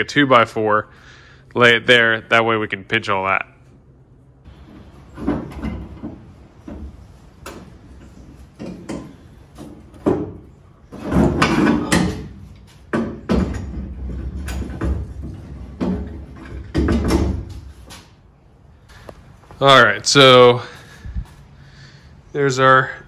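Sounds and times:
wood and clamps knocking and clanking: 0:04.5 - 0:17.7.

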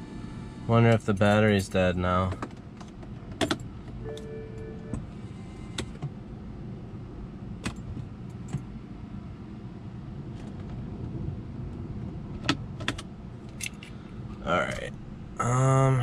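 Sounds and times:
steady low hum: 0:00.0 - 0:16.0
short clicks in car cabin: 0:02.3 - 0:05.1, 0:05.7 - 0:06.2, 0:07.6 - 0:08.7.

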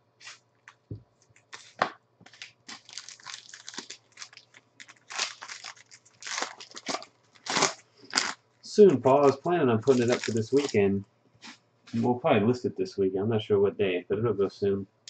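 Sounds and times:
foil wrapper crinkling and tearing: 0:00.2 - 0:08.4, 0:09.1 - 0:10.8
plastic sleeve rustling: 0:00.2 - 0:08.4, 0:09.0 - 0:12.0.

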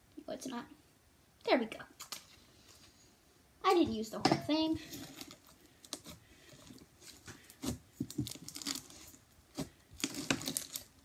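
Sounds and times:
slime squelches: 0:04.5 - 0:11.0
slime crackling and popping: 0:07.6 - 0:11.0.

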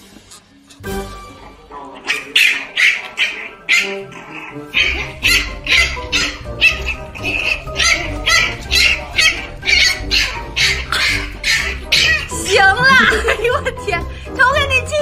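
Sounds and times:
puppy crying: 0:02.0 - 0:13.3.

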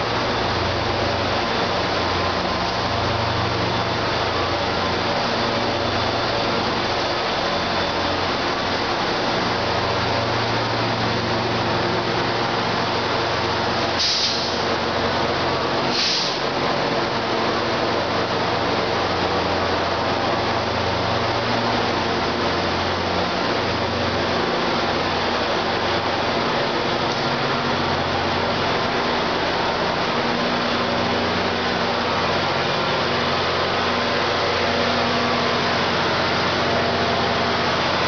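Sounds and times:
diesel locomotive engine droning: 0:00.0 - 0:38.0
short hisses: 0:14.0 - 0:14.6, 0:15.9 - 0:16.4.

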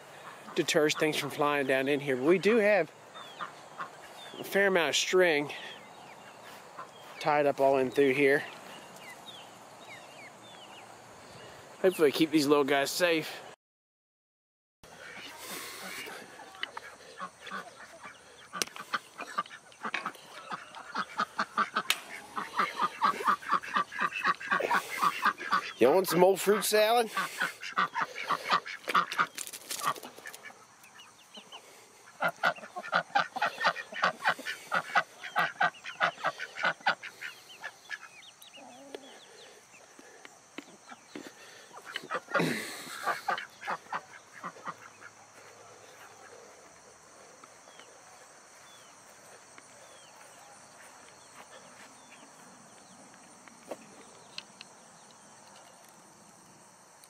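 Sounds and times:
poultry calling harshly: 0:00.0 - 0:11.6, 0:14.9 - 0:52.7
crickets chirring: 0:14.9 - 0:57.0.

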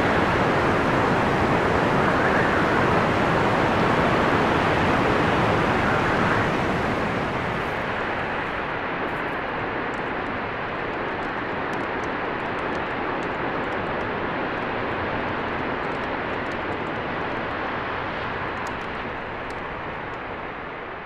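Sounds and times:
strong wind blowing: 0:00.0 - 0:09.0.

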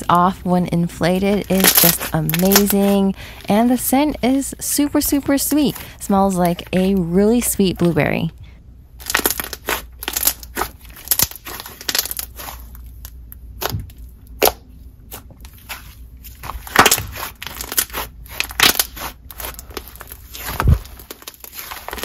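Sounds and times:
slime squished by hand: 0:09.0 - 0:22.0.

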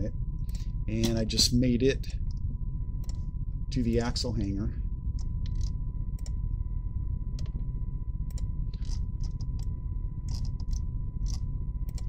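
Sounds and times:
low background hum: 0:00.0 - 0:12.0
computer mouse clicking: 0:08.3 - 0:09.7, 0:10.3 - 0:12.0.

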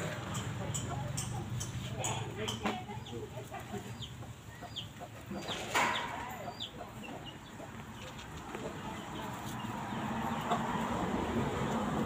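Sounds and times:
bird chirping: 0:03.9 - 0:10.6.

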